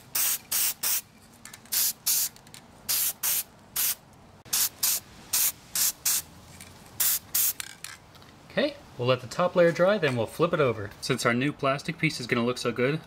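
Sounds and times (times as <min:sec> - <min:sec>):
spray can hissing bursts: 0:00.0 - 0:01.1, 0:01.7 - 0:06.3, 0:07.0 - 0:07.6.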